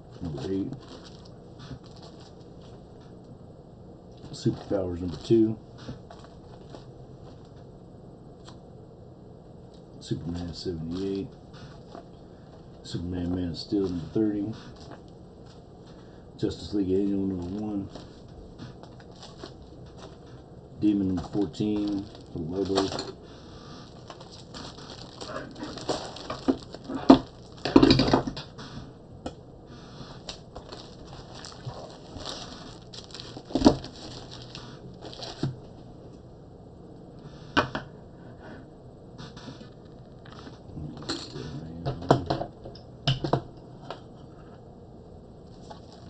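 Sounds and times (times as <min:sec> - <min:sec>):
comic books rustling and sliding: 0:00.1 - 0:02.9, 0:04.2 - 0:07.5, 0:10.2 - 0:28.9, 0:29.7 - 0:35.8, 0:45.5 - 0:46.0
comic books handled on desk: 0:21.0 - 0:23.2.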